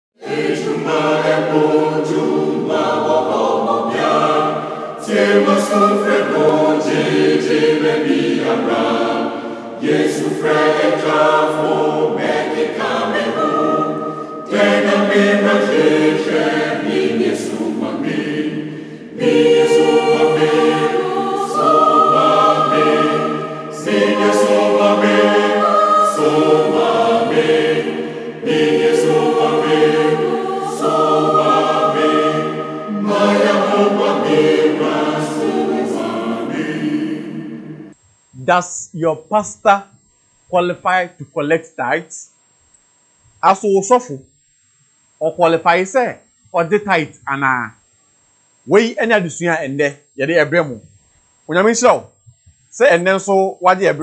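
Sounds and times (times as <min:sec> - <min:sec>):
choir singing: 0:00.2 - 0:38.0.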